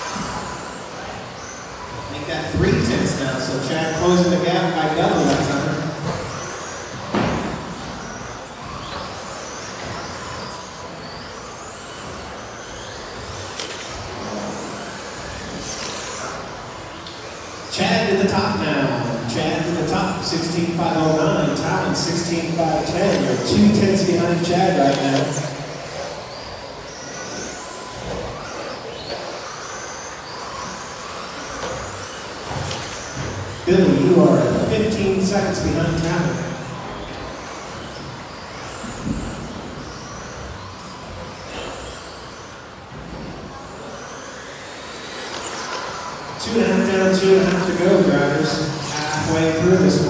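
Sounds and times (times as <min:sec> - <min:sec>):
electric motors whining: 0:00.0 - 0:50.0.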